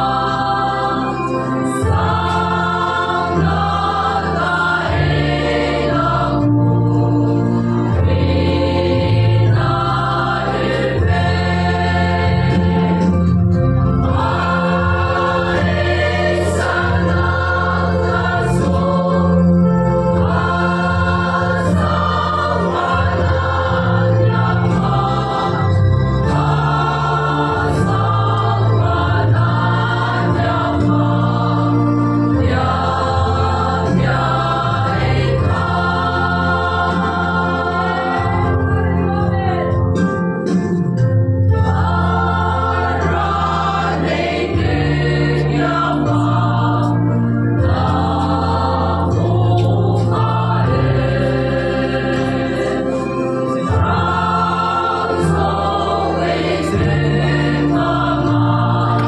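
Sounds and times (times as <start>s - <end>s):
choir singing in harmony: 0.0s - 59.0s.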